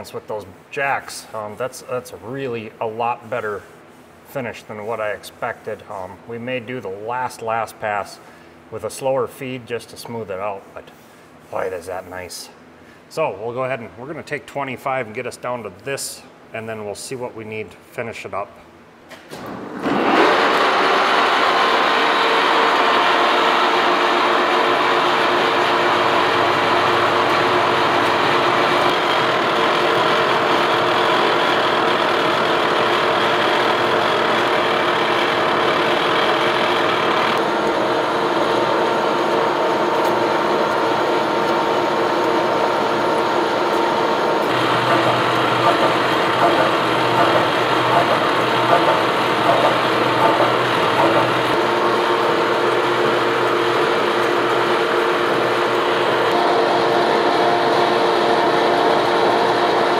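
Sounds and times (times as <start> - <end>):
boring mill machining metal: 19.8 - 59.9.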